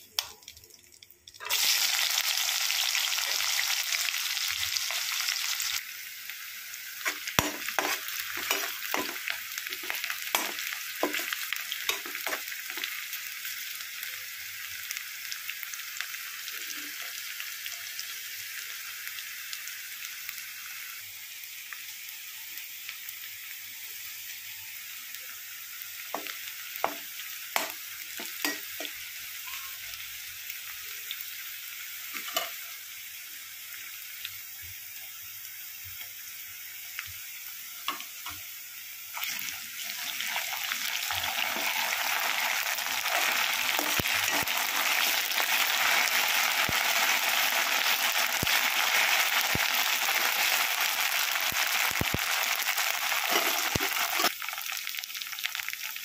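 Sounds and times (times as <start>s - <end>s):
onions sizzling in hot oil: 0.0s - 56.0s.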